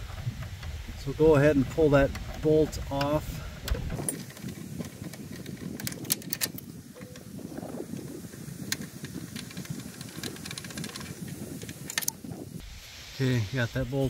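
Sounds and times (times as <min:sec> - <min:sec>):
ratchet clicking: 0:08.7 - 0:12.2.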